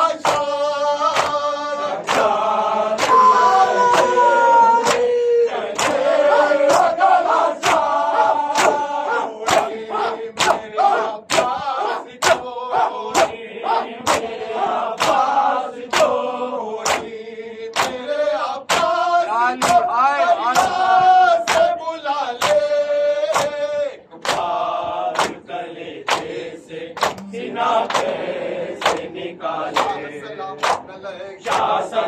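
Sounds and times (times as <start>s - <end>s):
men chanting a lament: 0.0s - 32.0s
unison chest-beating strikes: 7.6s - 14.4s.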